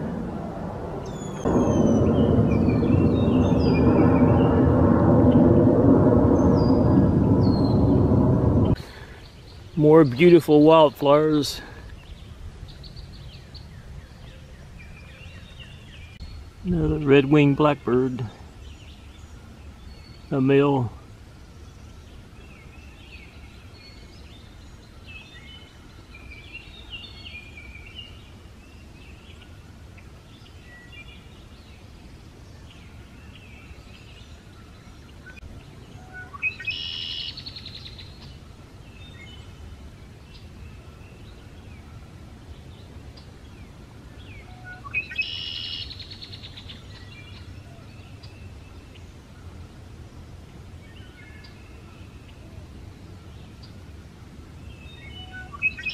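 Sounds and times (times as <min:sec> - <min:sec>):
blackbird song with buzzy trill: 0:01.0 - 0:04.6, 0:06.4 - 0:08.1, 0:09.2 - 0:20.8, 0:30.2 - 0:49.2, 0:54.6 - 0:55.9.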